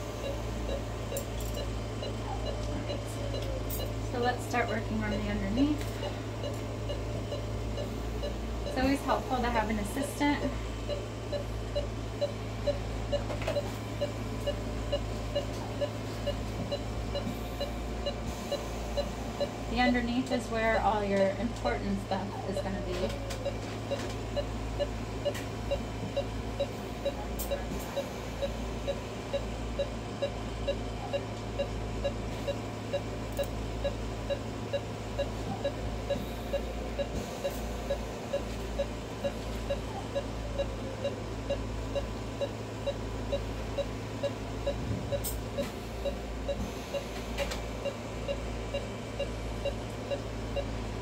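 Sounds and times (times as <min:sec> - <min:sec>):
low electrical hum: 0:00.0 - 0:51.0
patient monitor beeping: 0:00.0 - 0:51.0.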